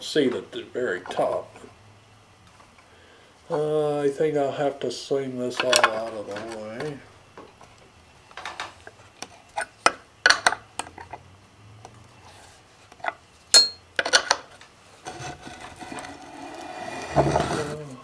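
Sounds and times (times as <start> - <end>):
wrench clinking on metal: 13.5 - 14.4.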